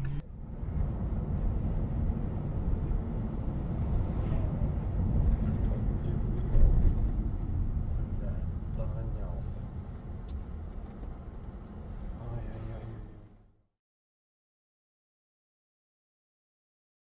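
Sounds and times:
road and engine rumble in car: 0:00.0 - 0:13.5.

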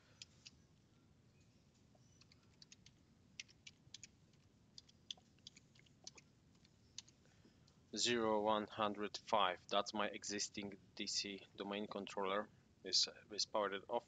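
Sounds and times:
computer keyboard keystrokes: 0:02.1 - 0:07.1.

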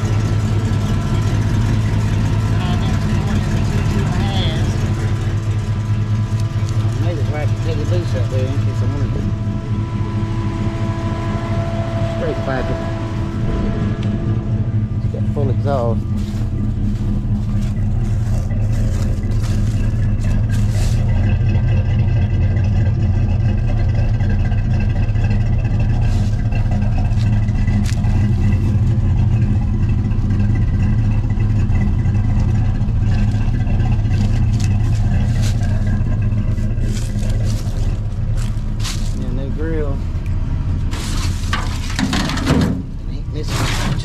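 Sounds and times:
engine idling: 0:00.0 - 0:44.0.

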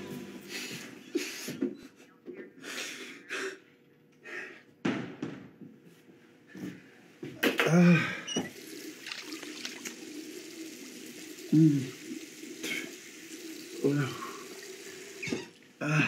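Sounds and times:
man breathing hard: 0:02.6 - 0:04.7.

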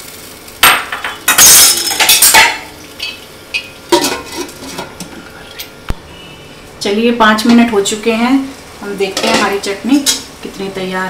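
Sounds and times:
low simmering sizzle: 0:00.0 - 0:11.0
metal spoon clattering on pan: 0:00.7 - 0:04.9.

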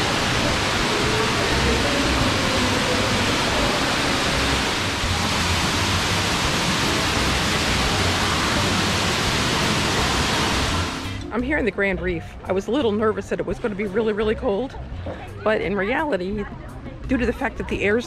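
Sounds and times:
water rushing in cave: 0:00.0 - 0:11.2.

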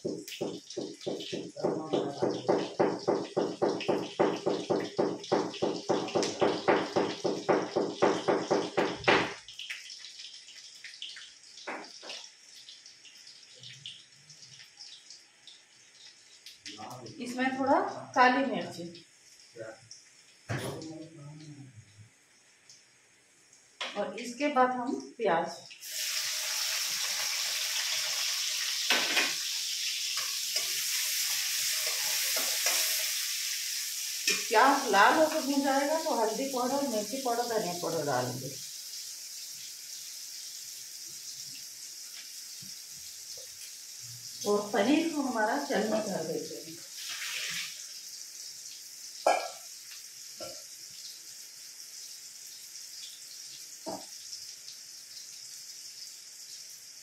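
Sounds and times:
rapid knocking on counter: 0:00.0 - 0:09.4
onion sizzling in hot oil: 0:00.0 - 0:57.0
spatula scraping a pan: 0:30.1 - 0:33.4.

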